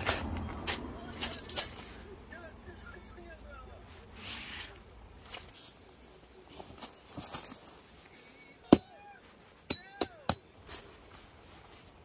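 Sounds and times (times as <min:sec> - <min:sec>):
metal tent hardware clanking: 0:00.0 - 0:02.1
soft rustle: 0:03.8 - 0:08.6, 0:10.6 - 0:12.0.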